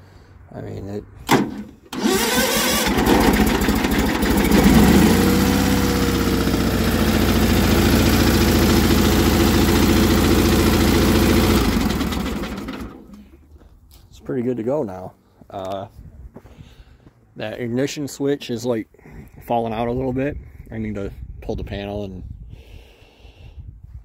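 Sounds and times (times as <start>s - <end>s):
tractor engine starting and idling: 1.2s - 13.5s.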